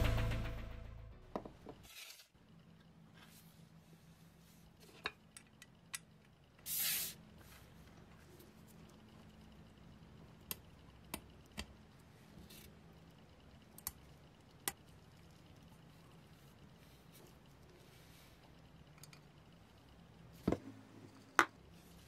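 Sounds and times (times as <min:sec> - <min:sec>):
short hiss-like burst: 0:06.7 - 0:07.2
low steady hum: 0:07.2 - 0:22.0.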